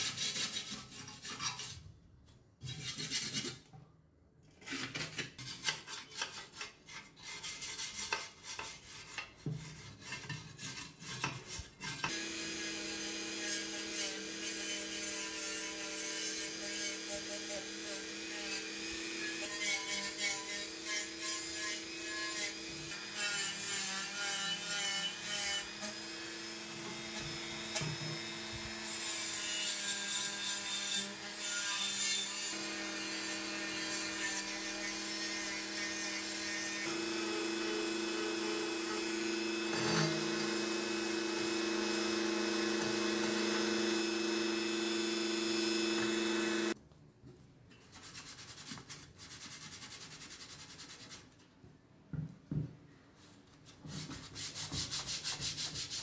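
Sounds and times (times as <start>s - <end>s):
rotary tool whining: 32.5s - 46.8s.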